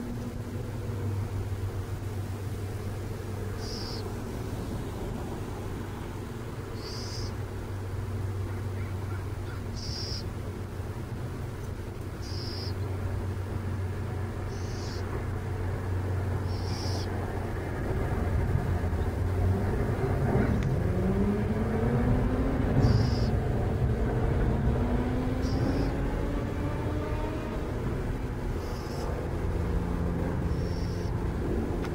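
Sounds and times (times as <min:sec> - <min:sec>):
traffic engine rumble: 0:00.0 - 0:31.9
engine note gliding up and down: 0:13.5 - 0:31.9.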